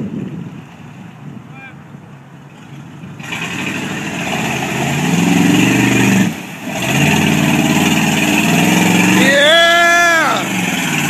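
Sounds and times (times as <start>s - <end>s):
truck engine revving: 3.2s - 11.0s.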